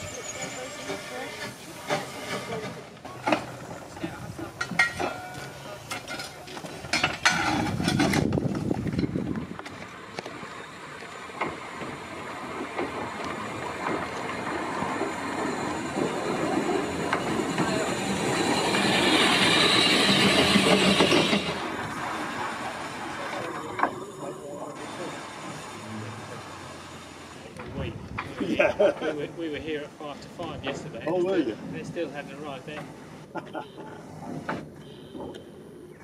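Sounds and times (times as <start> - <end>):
steam hiss: 0.0 - 4.8, 14.6 - 27.6
rail rumble: 0.0 - 36.0.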